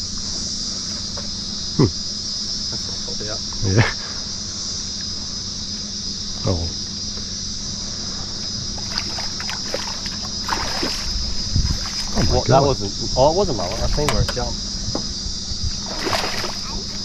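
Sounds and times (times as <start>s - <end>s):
insects droning: 0.0s - 17.0s
fish splashing at water surface: 8.8s - 12.2s, 15.8s - 17.0s.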